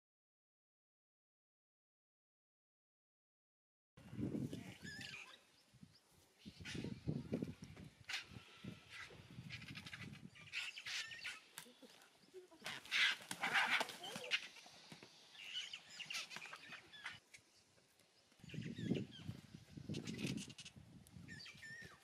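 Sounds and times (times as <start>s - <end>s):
wing flapping: 6.6s - 17.2s
vultures hissing and squawking: 8.0s - 12.0s, 12.6s - 17.2s.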